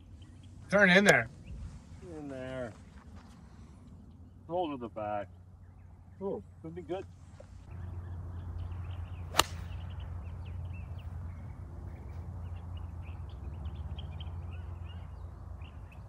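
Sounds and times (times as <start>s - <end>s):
golf club striking ball: 9.3s - 10.0s.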